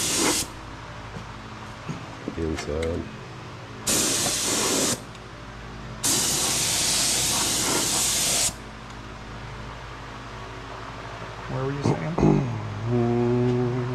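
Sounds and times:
paint spray gun hissing: 0.0s - 0.5s, 3.9s - 5.0s, 6.0s - 8.6s.

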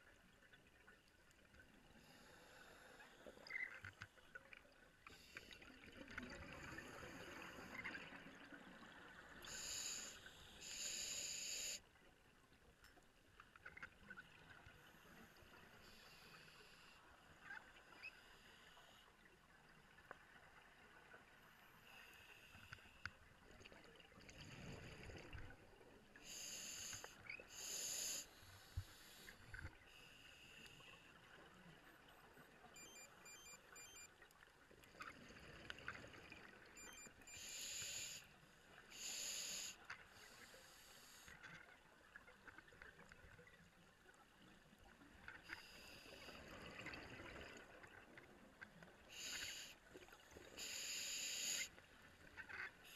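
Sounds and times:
regulator inhaling hiss: 9.4s - 11.8s, 26.2s - 31.0s, 37.3s - 38.3s, 38.9s - 41.4s, 49.1s - 49.8s, 50.5s - 51.8s.

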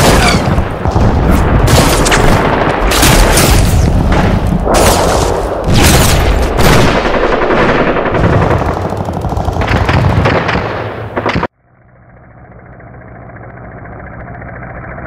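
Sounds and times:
explosions: 0.0s - 8.9s
gunshots: 0.0s - 11.5s
machine-gun fire: 0.0s - 11.5s.

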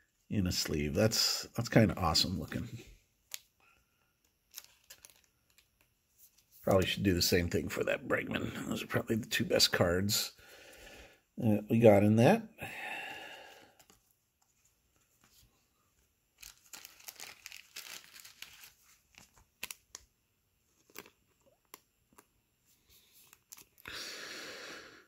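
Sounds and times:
plastic card sleeve crinkling: 4.2s - 6.5s, 13.7s - 15.6s, 16.3s - 23.9s.

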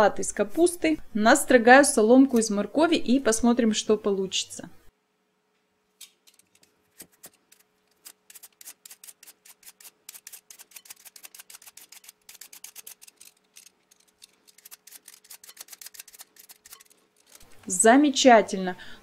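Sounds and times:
peeler scraping carrot: 6.3s - 17.8s.

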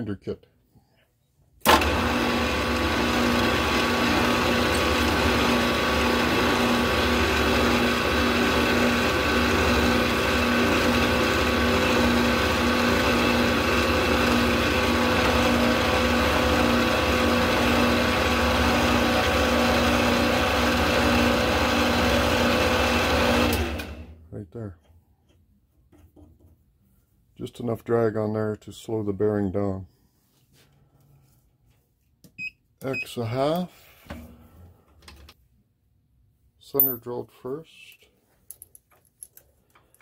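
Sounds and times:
milling machine spindle whining: 1.7s - 24.0s.

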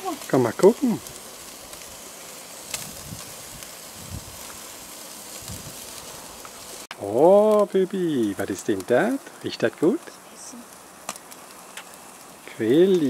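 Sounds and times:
meat sizzling on a grill: 0.0s - 13.0s.

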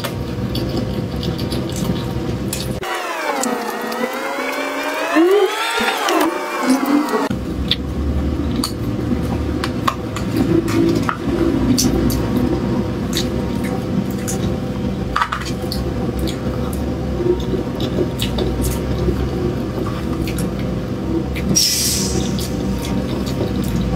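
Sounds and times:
wet chewing: 0.0s - 4.2s, 8.5s - 14.6s
steady hum: 0.0s - 23.9s.

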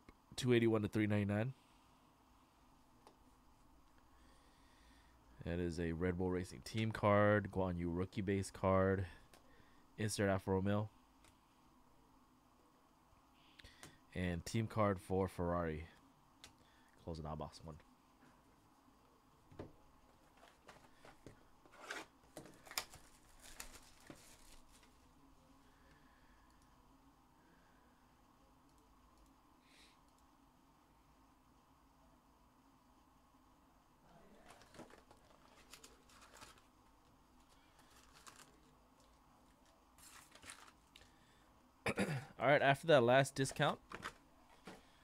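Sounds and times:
rustling of cardboard and foil: 20.2s - 25.0s, 34.4s - 41.1s
plastic wrapper crinkling: 21.7s - 25.0s, 34.4s - 36.7s, 37.4s - 41.1s.

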